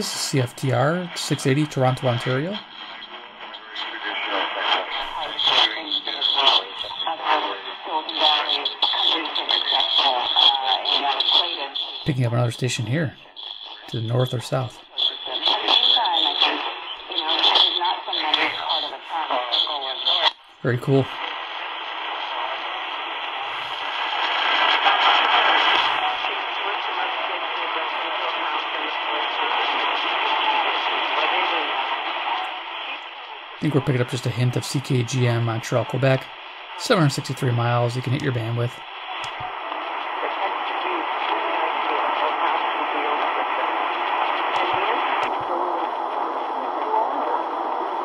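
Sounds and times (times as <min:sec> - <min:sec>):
faint radio station audio: 0:00.0 - 0:48.0
radio static hiss: 0:00.0 - 0:48.0.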